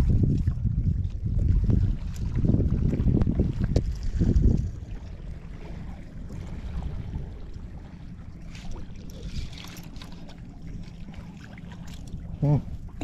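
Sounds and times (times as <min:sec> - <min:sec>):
wind noise on microphone: 0:00.0 - 0:07.8
water lapping at boat hull: 0:00.0 - 0:13.0.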